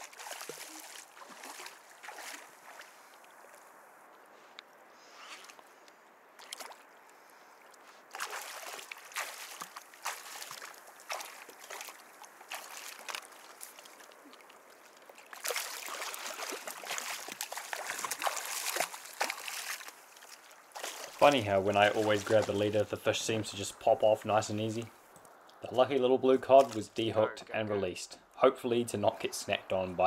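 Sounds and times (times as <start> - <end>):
fish thrashing and splashing water: 0.0 - 3.7, 6.4 - 7.0, 8.1 - 22.7.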